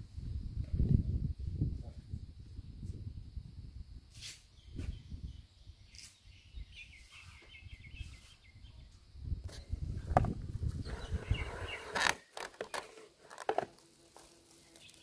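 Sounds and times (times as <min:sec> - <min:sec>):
wind rumble on microphone: 0:00.0 - 0:12.0
bird chirping: 0:04.5 - 0:09.0, 0:10.8 - 0:13.0.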